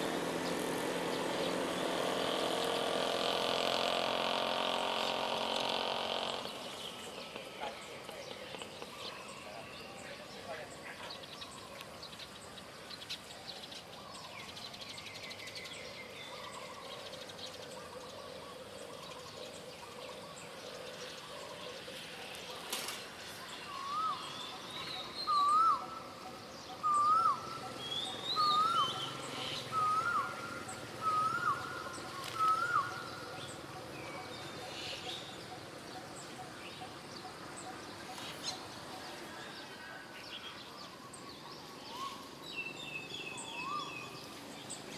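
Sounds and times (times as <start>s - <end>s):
faint bird chirps: 4.8s - 44.9s
loud whistled bird note: 26.8s - 30.4s, 31.0s - 33.1s.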